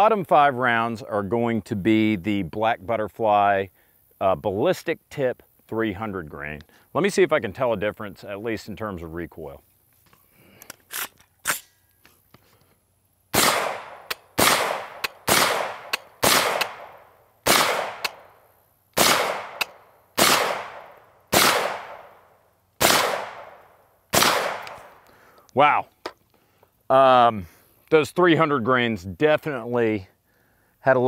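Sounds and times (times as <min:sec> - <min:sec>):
rifle shots with echo: 0:13.4 - 0:18.2, 0:19.0 - 0:22.2, 0:22.8 - 0:24.9
rifle handling clicks: 0:24.4 - 0:26.3.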